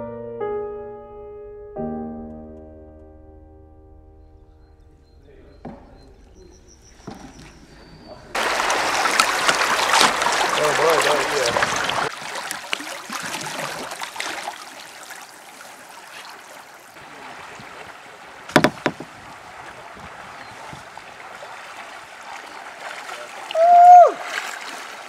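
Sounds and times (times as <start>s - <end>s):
paddles splashing in water: 5.5s - 25.0s
sharp knocks: 5.6s - 6.1s, 18.5s - 19.2s
river water rushing: 8.3s - 25.0s
loud high call: 23.5s - 24.4s.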